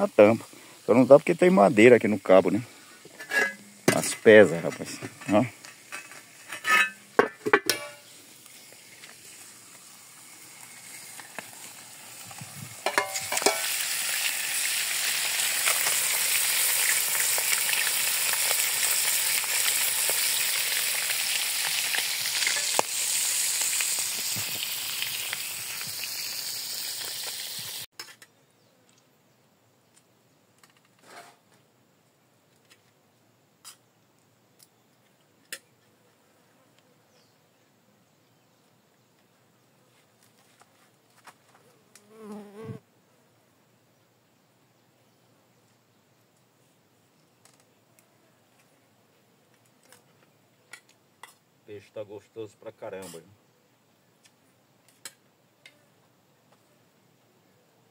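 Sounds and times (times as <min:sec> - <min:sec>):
fish sizzling in a pan: 0:05.6 - 0:07.2, 0:07.8 - 0:27.9.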